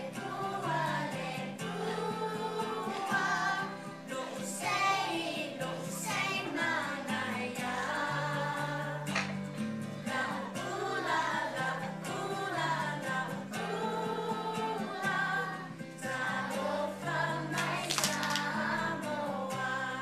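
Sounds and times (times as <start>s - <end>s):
children singing: 0.0s - 9.4s, 10.0s - 20.0s.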